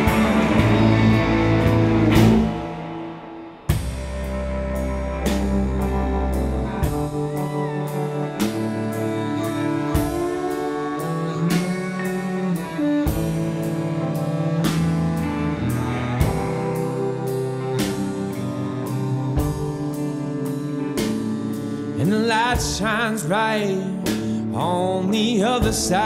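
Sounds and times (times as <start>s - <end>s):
cymbal beat: 0.0s - 7.4s
electric guitar: 0.0s - 26.0s
upright bass: 0.0s - 26.0s.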